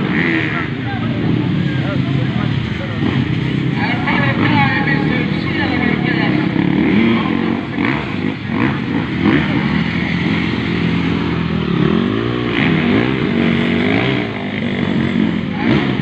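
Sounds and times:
dirt bike engines revving: 0:00.0 - 0:16.0.

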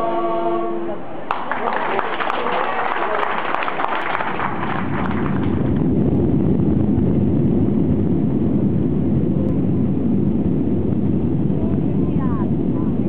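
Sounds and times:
airliner engine rumble in cabin: 0:03.8 - 0:13.0.

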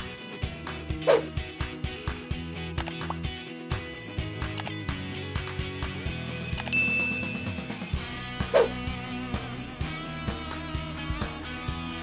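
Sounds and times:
background music with beat: 0:00.0 - 0:12.0
bright ding: 0:06.8 - 0:07.8.

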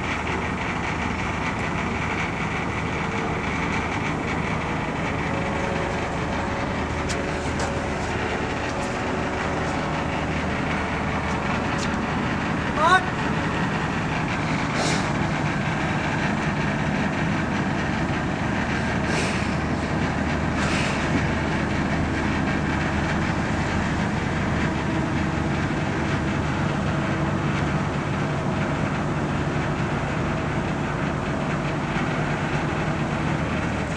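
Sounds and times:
diesel engine droning: 0:00.0 - 0:33.9
short hisses: 0:14.8 - 0:15.1.

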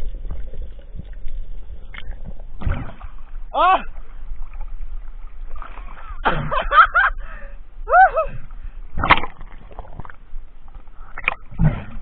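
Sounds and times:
water splash: 0:00.0 - 0:06.8, 0:08.9 - 0:10.1
man laughing: 0:06.4 - 0:07.2
man crying out excitedly: 0:07.9 - 0:08.3.

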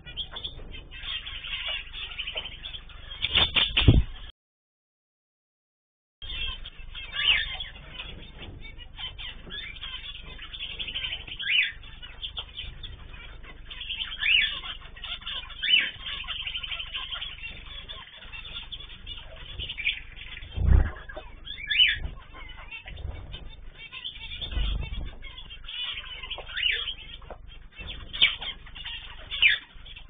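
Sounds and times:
cage birds chirping: 0:00.0 - 0:04.3, 0:06.2 - 0:30.0
loud low thump: 0:20.5 - 0:21.1.

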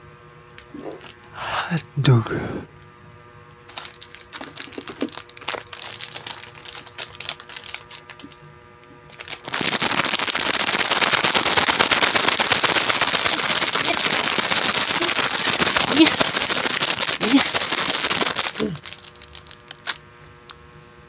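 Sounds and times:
plastic packet crinkling: 0:03.7 - 0:08.4, 0:09.1 - 0:20.0.

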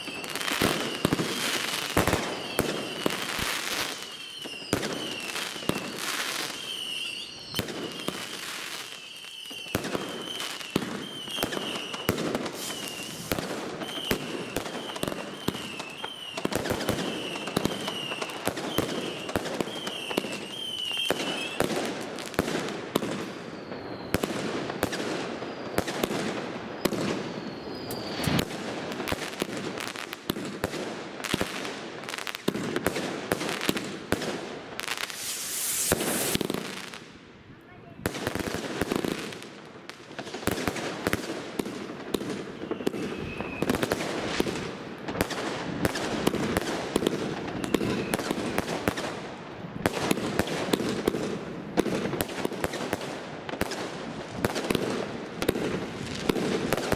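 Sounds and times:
short falling whistles: 0:00.0 - 0:01.4, 0:03.9 - 0:05.8, 0:06.4 - 0:08.3, 0:08.9 - 0:16.4, 0:23.4 - 0:24.2, 0:27.2 - 0:28.4, 0:42.5 - 0:43.8
wavering high whistle: 0:00.0 - 0:01.6, 0:02.2 - 0:16.4, 0:17.0 - 0:21.6, 0:27.2 - 0:28.4, 0:42.5 - 0:43.8
fireworks popping and crackling: 0:00.0 - 0:56.9.

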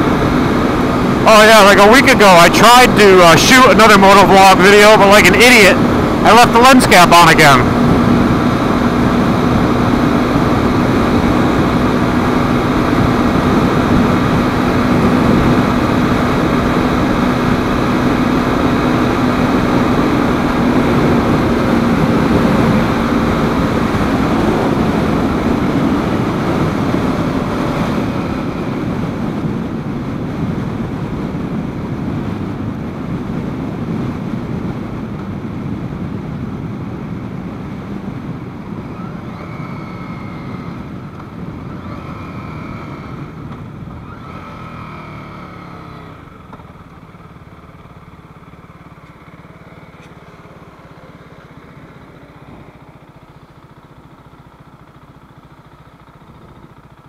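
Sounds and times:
motorcycle engine droning: 0:00.0 - 0:57.0
wind noise on microphone: 0:07.7 - 0:44.8.

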